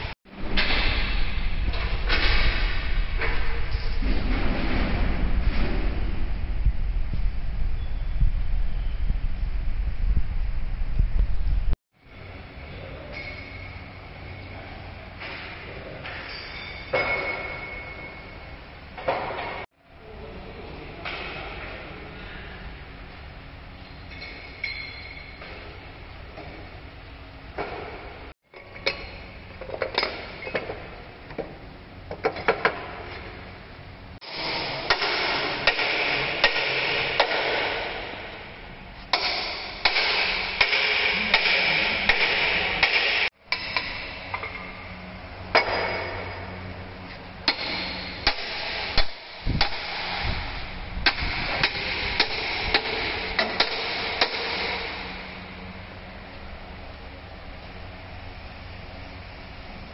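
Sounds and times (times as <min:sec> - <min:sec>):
metal tools and chains clanking: 0:16.0 - 0:18.4, 0:24.1 - 0:25.4.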